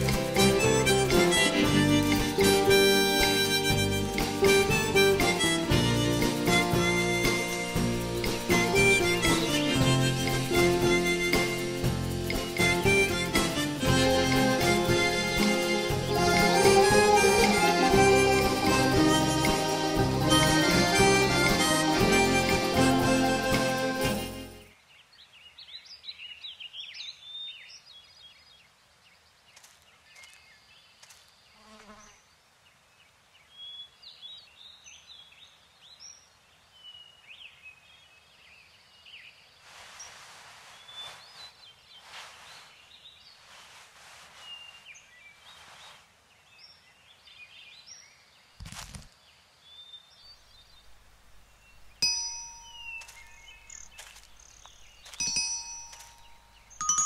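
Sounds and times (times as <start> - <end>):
birds chirping: 0.0 - 48.5, 49.7 - 57.0
soft bell-like chimes: 52.0 - 54.1, 55.0 - 57.0.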